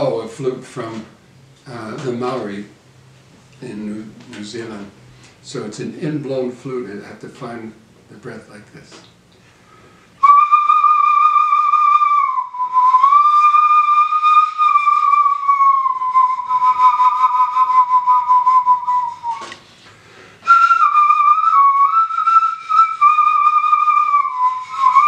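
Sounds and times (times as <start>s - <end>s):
breathy bone flute notes: 10.1s - 19.6s, 20.4s - 25.0s.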